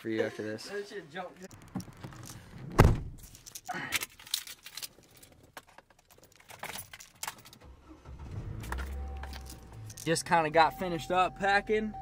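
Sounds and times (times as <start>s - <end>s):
keys jangling: 3.2s - 7.6s, 8.6s - 10.2s.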